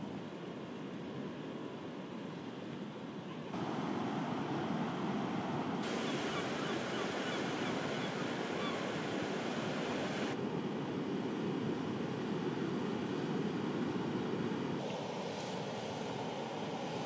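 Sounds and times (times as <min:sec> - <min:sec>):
wind: 0:00.0 - 0:17.0
sea surf breaking: 0:03.5 - 0:10.4, 0:11.7 - 0:17.0.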